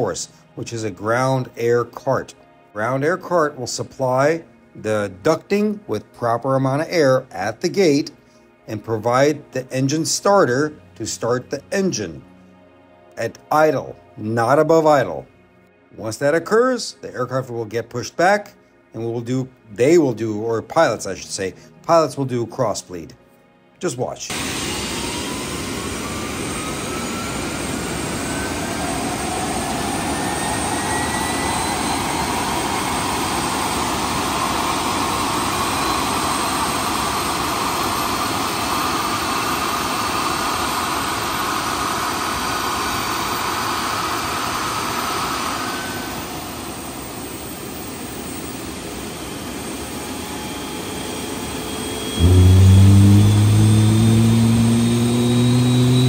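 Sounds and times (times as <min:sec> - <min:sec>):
jet engine revving loud and low: 0:24.3 - 0:56.0
jet engine spooling up whine: 0:24.3 - 0:56.0
steady jet rush: 0:24.3 - 0:56.0.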